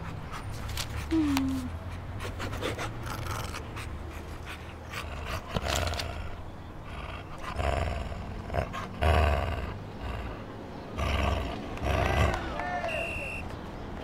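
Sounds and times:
dog panting: 0.0 - 7.7.

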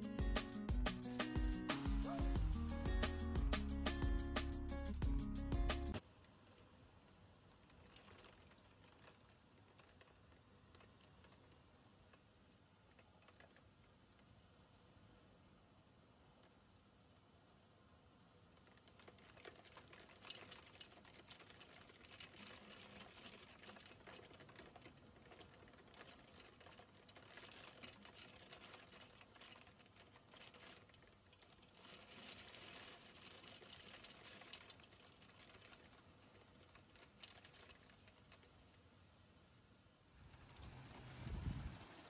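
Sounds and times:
hail ticking on window glass: 18.6 - 38.5.

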